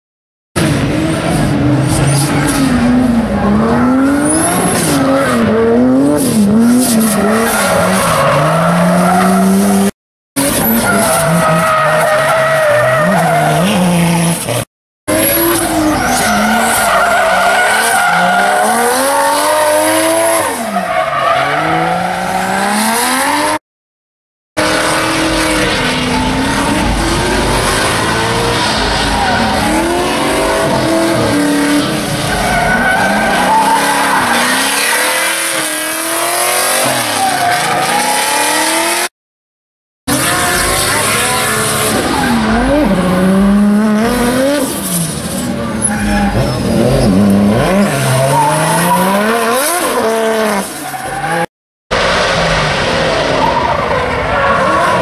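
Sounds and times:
car engines revving: 0.6 - 23.6, 24.6 - 39.1, 40.1 - 55.0.

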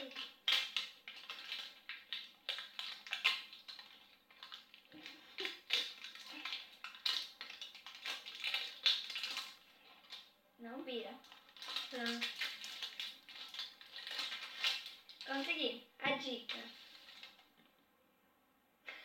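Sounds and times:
wrapping rustling and crackling: 0.0 - 17.8.

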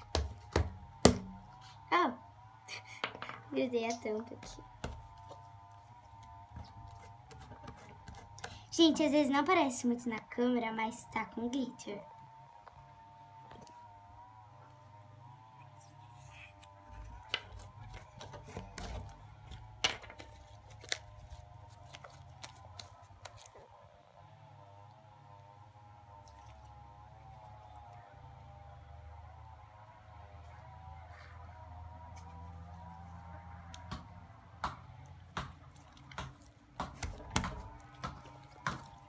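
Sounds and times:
slime squelching: 3.9 - 8.9, 15.7 - 23.6, 35.3 - 39.0
slime kneaded by hand: 16.9 - 23.6.

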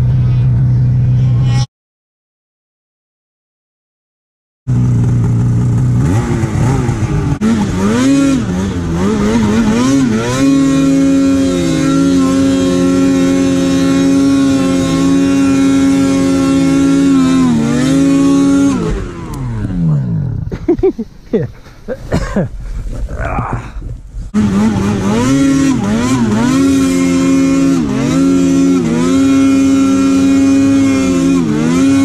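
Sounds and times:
snowmobile engine revving: 4.7 - 22.5, 24.2 - 32.0.

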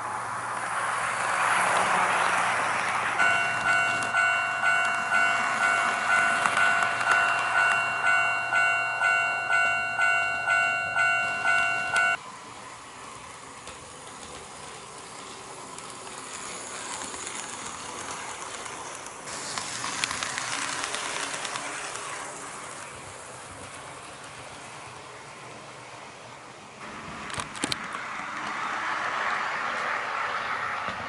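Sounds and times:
model train wheels rolling: 0.5 - 26.4
rail joint clicking: 1.5 - 12.2, 13.6 - 25.1
level crossing alarm dinging: 3.2 - 12.2.

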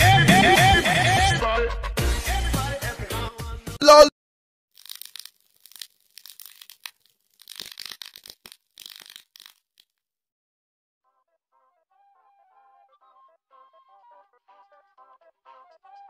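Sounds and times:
electrical crackling and buzzing: 4.8 - 9.8.

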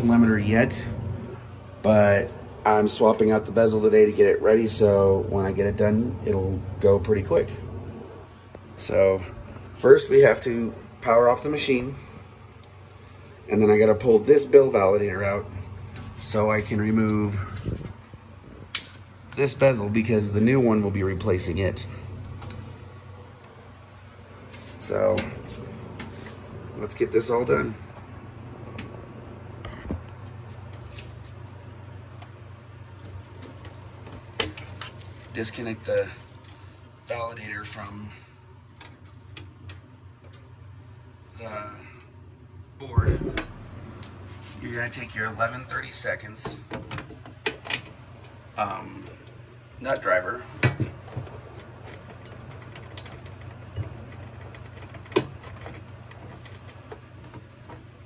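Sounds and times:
steady low hum: 0.0 - 58.0
hands rustling among wiring: 12.4 - 38.0, 42.9 - 46.4, 47.0 - 58.0.

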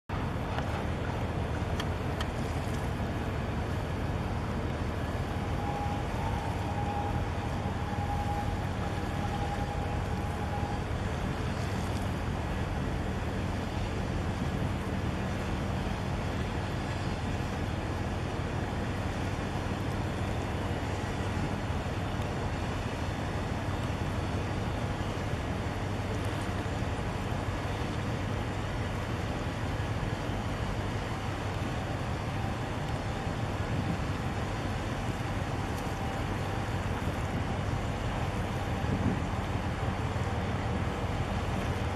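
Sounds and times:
water and wind noise: 0.0 - 41.9
boat engine drone: 0.1 - 41.9
steady high tone: 5.3 - 11.0.

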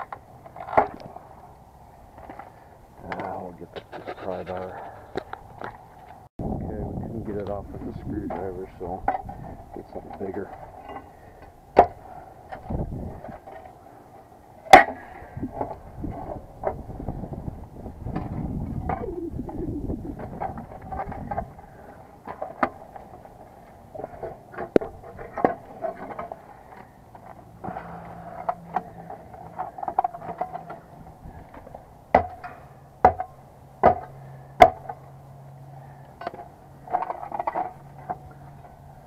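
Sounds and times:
metal scraping: 2.1 - 5.2
pry bar striking metal: 14.7 - 15.1.

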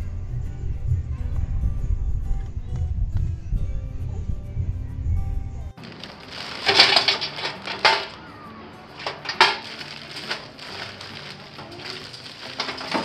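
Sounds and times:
paper crinkling and rustling: 5.8 - 13.0.

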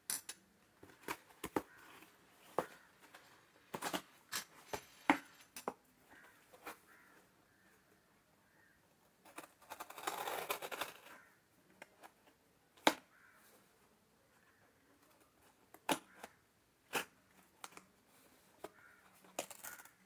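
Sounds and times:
tool scraping packing tape: 9.7 - 11.0.

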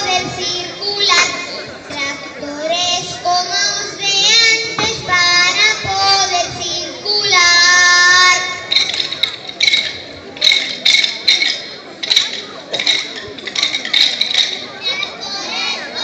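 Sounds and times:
children singing together: 0.0 - 8.8.

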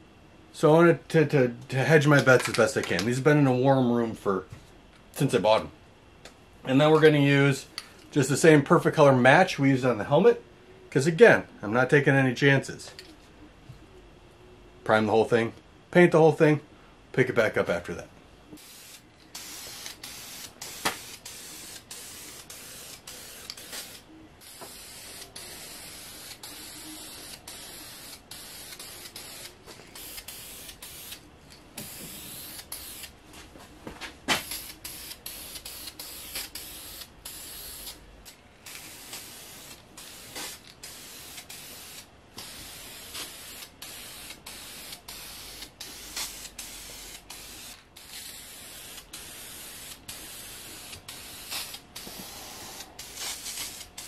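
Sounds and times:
aerosol spray can hissing: 18.6 - 31.2, 31.8 - 33.1, 34.4 - 38.0, 38.6 - 54.0.

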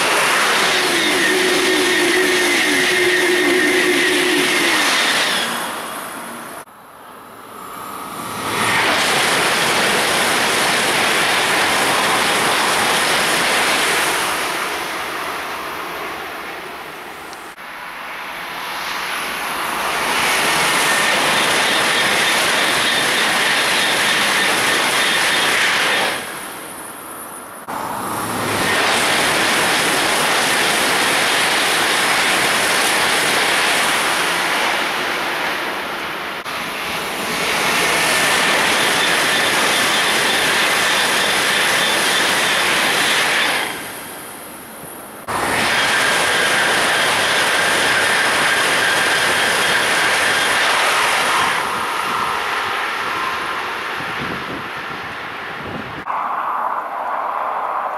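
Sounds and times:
thin high whine: 0.0 - 14.5, 17.1 - 30.7, 56.0 - 57.9
train rushing past: 0.0 - 57.9.

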